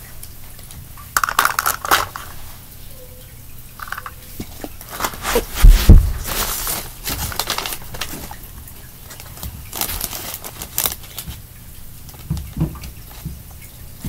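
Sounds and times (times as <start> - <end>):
heavy thumps near microphone: 5.2 - 6.8.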